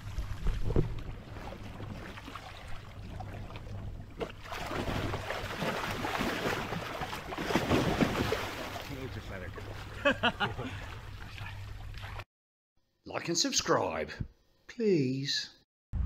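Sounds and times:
fish thrashing and splashing water: 0.0 - 12.2.

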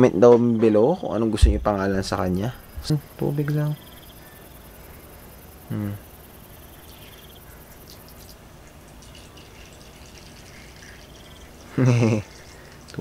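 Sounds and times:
short vocal sound: 5.7 - 6.0
water trickling into plastic dish: 7.8 - 13.0.

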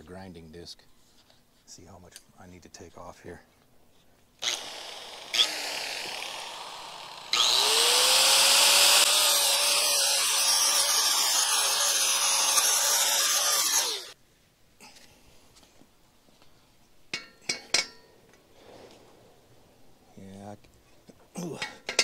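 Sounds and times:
angle grinder grinding steel: 4.4 - 14.2.

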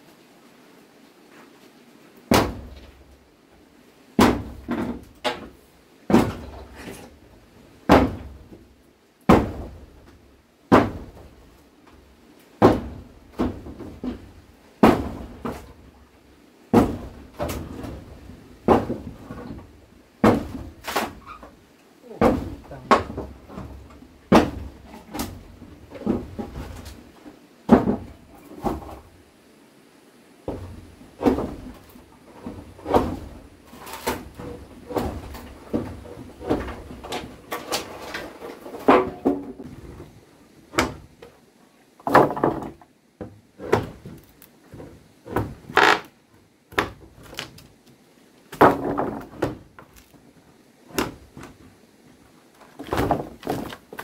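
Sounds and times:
knocks and thuds: 2.3 - 3.0, 4.2 - 6.9, 7.8 - 8.6, 9.3 - 11.4, 12.6 - 15.9, 16.7 - 21.6, 22.2 - 27.1, 27.7 - 29.1, 30.5 - 40.1, 40.7 - 41.3, 42.0 - 46.0, 46.7 - 47.6, 48.5 - 50.1, 50.9 - 51.7, 52.8 - 54.0.

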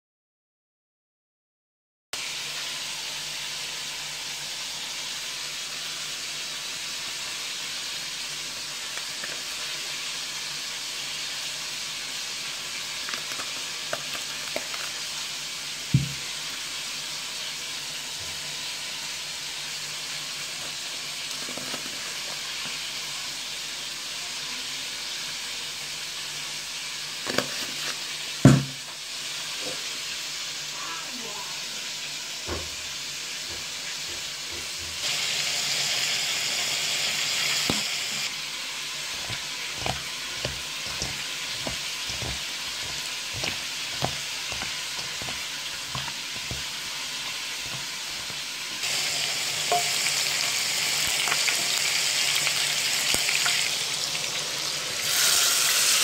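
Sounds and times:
steady hiss: 35.0 - 54.2.

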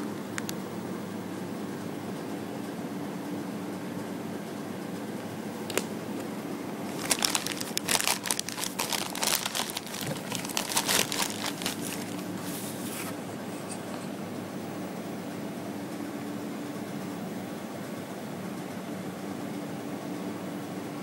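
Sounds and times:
steady low hum: 0.0 - 21.0
plastic bag crinkling: 6.8 - 12.5.

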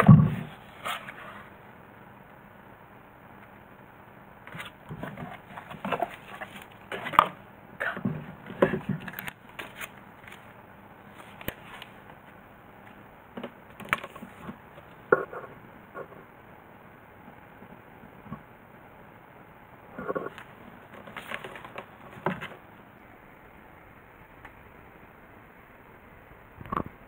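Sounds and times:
cardboard box being handled: 4.5 - 7.4, 20.3 - 22.6.

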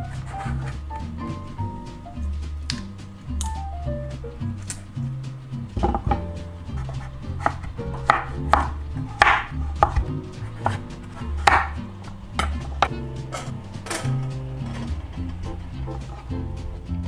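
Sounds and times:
knife chopping on wooden board: 5.8 - 11.8.

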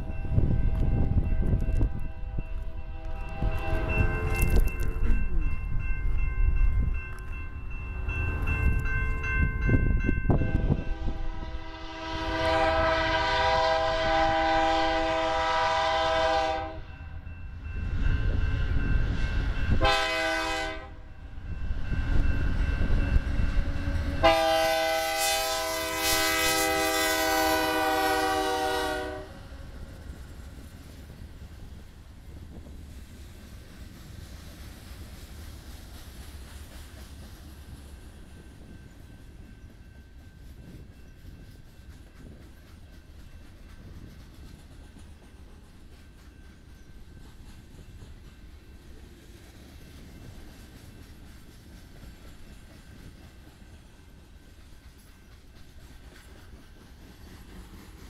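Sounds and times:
crossing signal bell ringing: 0.0 - 11.3
locomotive air horn: 1.8 - 4.6, 10.4 - 16.9, 19.8 - 21.0, 24.2 - 29.6.

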